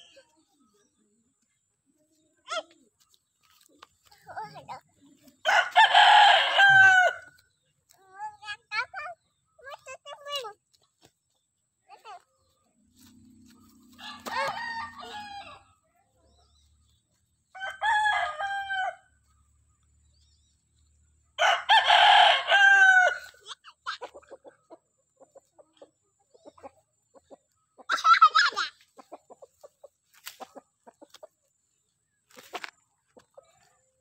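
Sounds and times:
rooster crowing: 5.5s - 7.3s, 14.0s - 15.6s, 17.6s - 19.0s, 21.4s - 23.2s.

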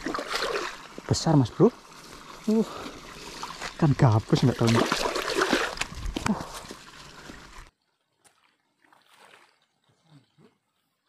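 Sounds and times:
fish thrashing and splashing: 0.0s - 1.0s, 2.1s - 9.9s.

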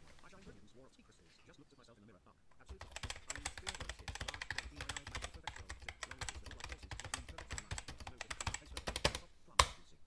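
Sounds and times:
fast typing on keyboard: 2.7s - 9.3s.

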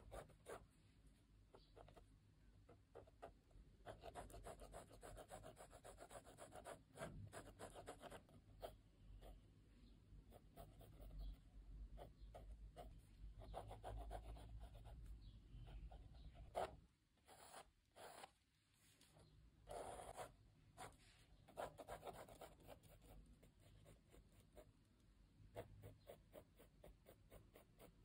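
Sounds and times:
pencil scratching on paper: 0.0s - 0.7s, 2.7s - 9.3s, 10.3s - 11.4s, 12.0s - 15.1s, 15.7s - 18.3s, 19.7s - 24.7s, 25.5s - 28.0s.

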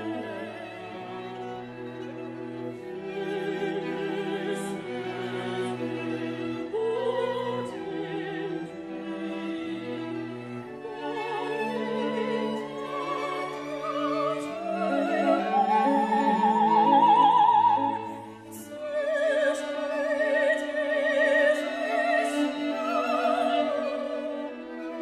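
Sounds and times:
cello: 0.0s - 25.0s
viola: 0.0s - 25.0s
violins: 0.0s - 25.0s
soprano singing with vibrato: 6.7s - 10.0s, 11.1s - 25.0s.

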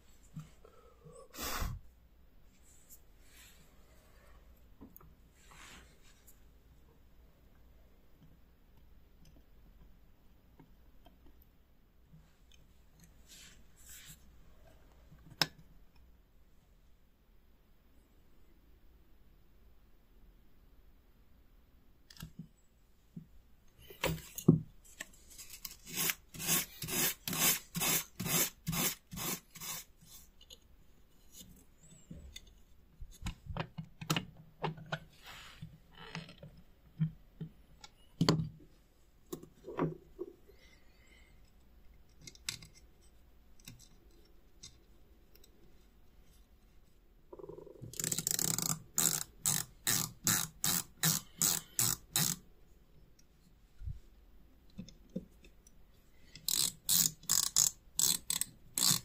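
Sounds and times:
screwdriver driving a screw: 25.8s - 29.9s, 48.0s - 52.4s, 56.4s - 59.0s.

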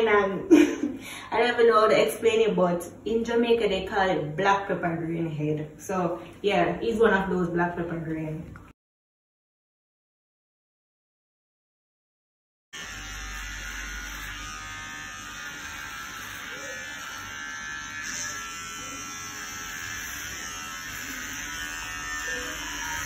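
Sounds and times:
electric hair clippers buzzing: 12.8s - 23.0s.

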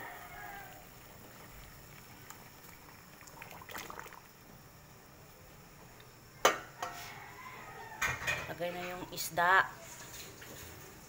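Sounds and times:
broth bubbling in a pot: 0.0s - 8.2s.

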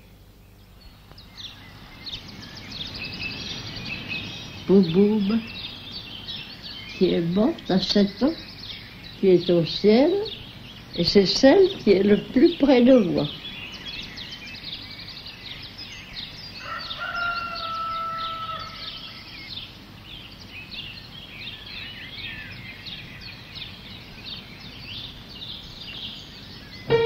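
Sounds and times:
small birds chirping: 0.0s - 27.0s
bird call holding steady note: 20.3s - 27.0s.

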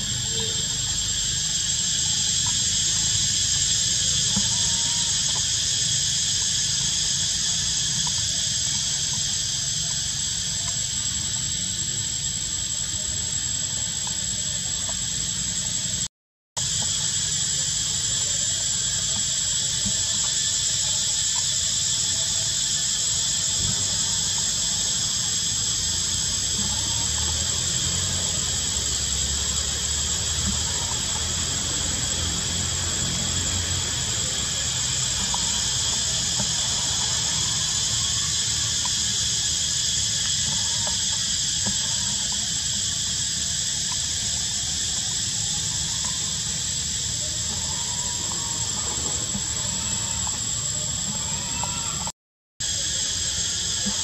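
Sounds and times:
cicadas shrill drone: 0.0s - 54.0s.

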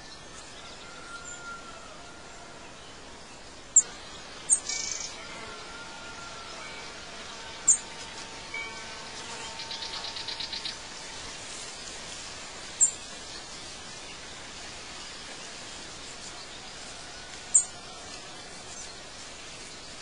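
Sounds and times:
outdoor background hiss: 0.0s - 20.0s
songbird chirps: 0.0s - 20.0s
rapid bird trill: 3.8s - 15.2s.

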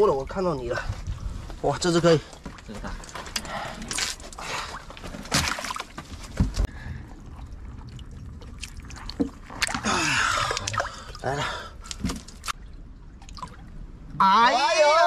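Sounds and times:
water sloshing and splashing: 0.0s - 14.2s
small clicks and drips: 7.0s - 13.8s.

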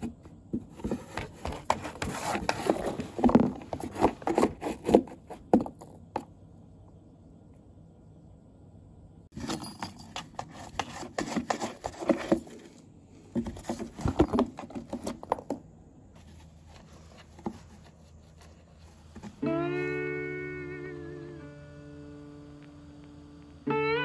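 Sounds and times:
claws scraping cardboard: 0.0s - 5.6s, 10.3s - 12.8s
rustling: 0.0s - 6.1s, 9.4s - 19.5s.

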